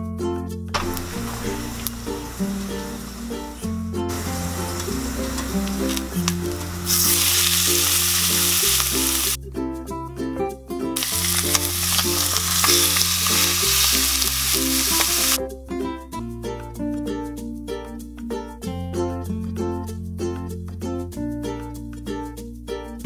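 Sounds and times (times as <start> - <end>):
ukulele background music: 0.0 - 23.0
chicken sizzling in hot oil: 0.8 - 9.4, 11.0 - 15.4.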